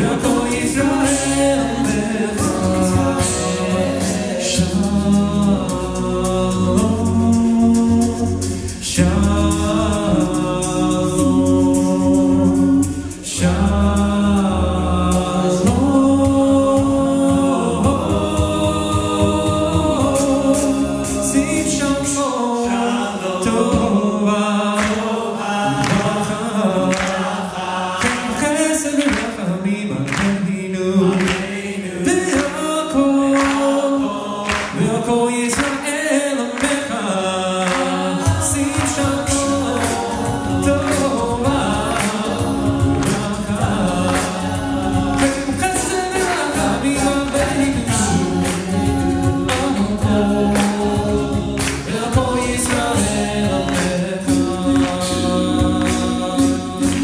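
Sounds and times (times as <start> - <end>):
sung bass line: 0.0 - 22.3, 37.6 - 57.0
male vocal group singing harmony: 0.0 - 57.0
vocal percussion hits: 0.0 - 57.0.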